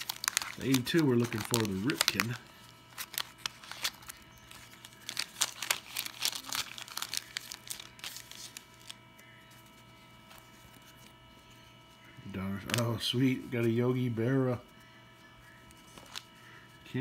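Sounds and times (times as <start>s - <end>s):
cards ticking as handled: 0.0s - 9.0s, 12.5s - 13.7s, 15.6s - 16.4s
wax paper wrapper crinkling and tearing: 0.0s - 9.2s, 15.7s - 16.4s.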